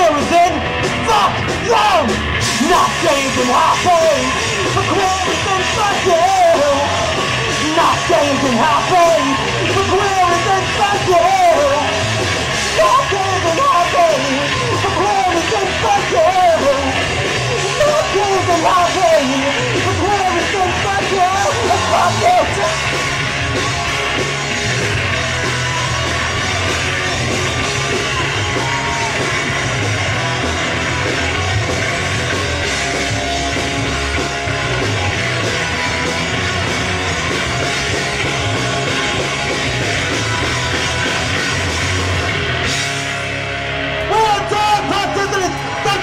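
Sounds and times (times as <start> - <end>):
punk rock band playing live: 0.0 - 46.0.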